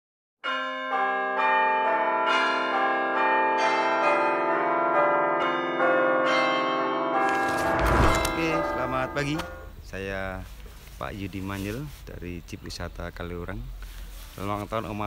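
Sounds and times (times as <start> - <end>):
bells ringing: 0.4 - 9.8.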